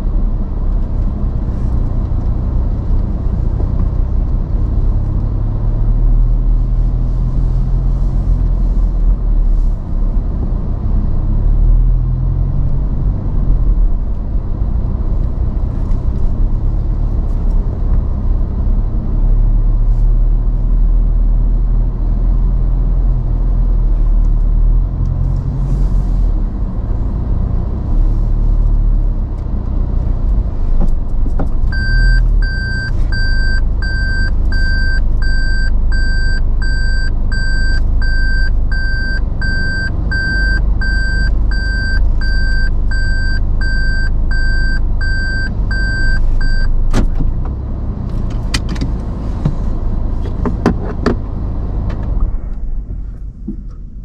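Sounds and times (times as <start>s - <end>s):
car engine rumble: 0.0s - 54.0s
high electronic beeps: 31.8s - 46.7s.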